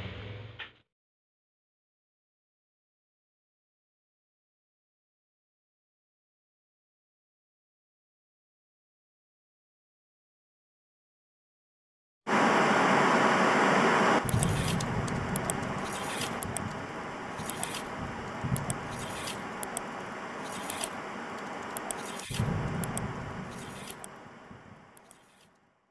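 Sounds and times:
loud rushing noise: 12.3s - 24.9s
steady noisy bed: 12.3s - 25.4s
sharp clicks: 14.2s - 24.2s, 24.9s - 25.5s.

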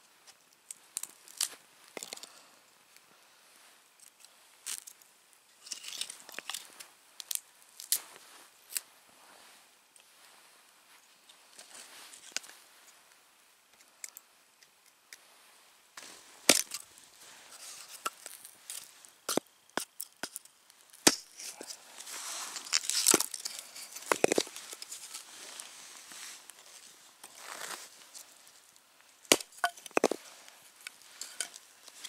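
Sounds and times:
hatchet chopping wood: 16.5s - 16.8s, 21.0s - 21.3s, 29.3s - 30.2s
wood splitting and splintering: 16.5s - 16.8s, 22.6s - 24.6s, 29.3s - 30.2s.

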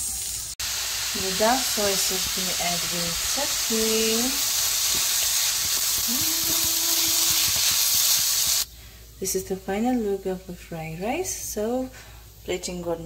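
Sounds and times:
fried rice sizzling in a pan: 0.0s - 8.7s.

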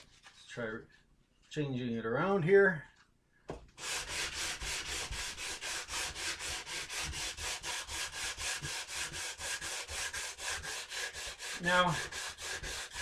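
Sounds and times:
sandpaper sanding wood: 3.8s - 13.0s.

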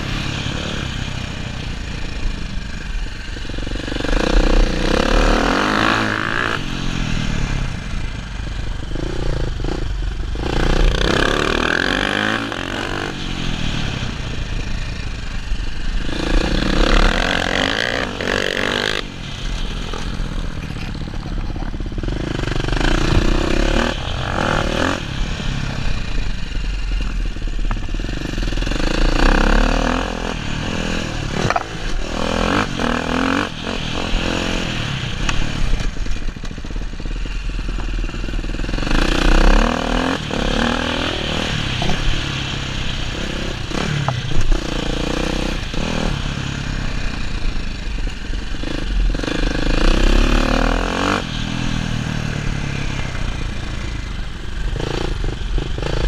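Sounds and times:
dirt bike engine revving: 0.0s - 47.6s, 48.2s - 56.0s.

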